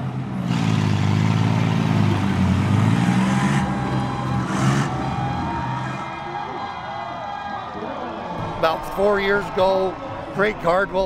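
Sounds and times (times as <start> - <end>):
harvester engines revving: 0.0 - 7.2.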